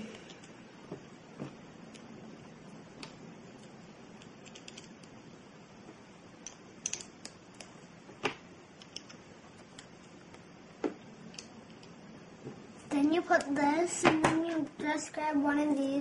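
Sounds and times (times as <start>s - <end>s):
faint steady hiss: 0.0s - 16.0s
plastic pieces clicking: 4.2s - 5.1s, 6.4s - 7.7s.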